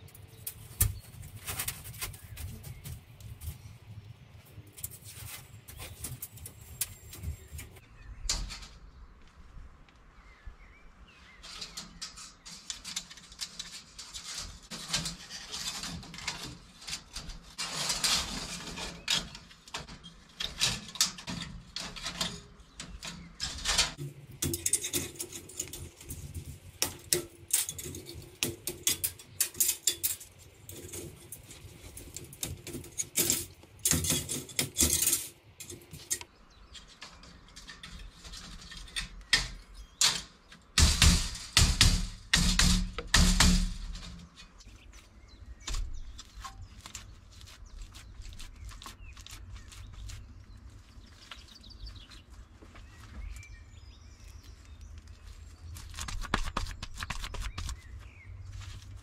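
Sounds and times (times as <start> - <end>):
metallic clicks and scrapes: 11.3 - 52.4
wire mesh rattling and clinking: 11.4 - 36.2.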